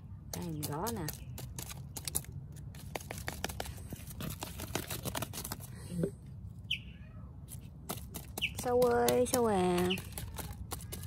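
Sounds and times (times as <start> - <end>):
stick tapping on leaves: 0.2 - 5.7, 7.7 - 11.0.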